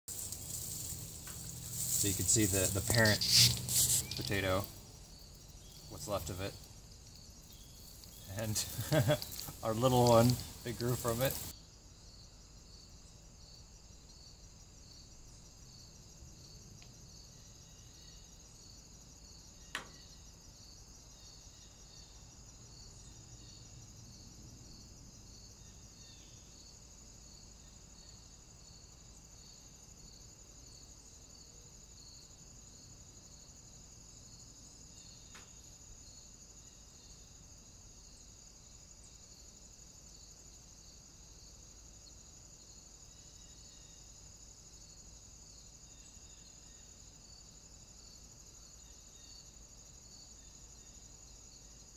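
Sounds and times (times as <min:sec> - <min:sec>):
crickets chirping: 0:00.0 - 0:51.9.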